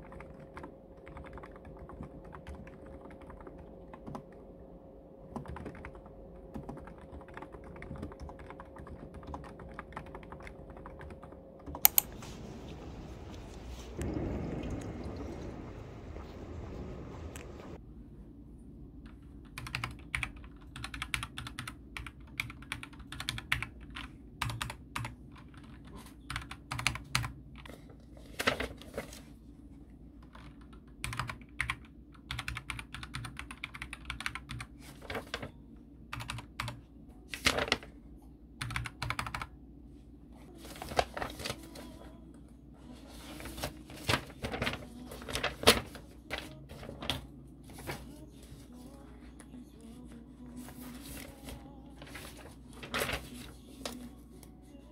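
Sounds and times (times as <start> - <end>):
computer keyboard typing: 0.0 - 4.4, 5.2 - 12.1, 19.2 - 27.7, 30.2 - 34.8, 36.1 - 36.8, 38.6 - 39.5
faint low hum: 0.0 - 54.9.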